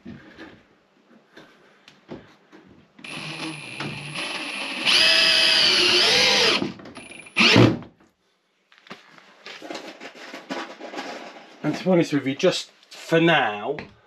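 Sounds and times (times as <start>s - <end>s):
cordless drill motor whine: 3.0s - 7.6s.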